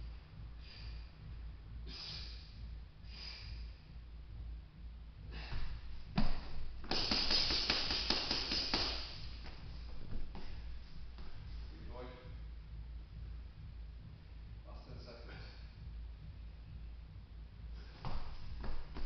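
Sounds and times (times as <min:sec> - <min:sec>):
hard breathing: 0:00.4 - 0:04.0, 0:05.2 - 0:06.1
sharp exhalations: 0:01.8 - 0:03.7
gloved punches on heavy bag: 0:06.2 - 0:09.1.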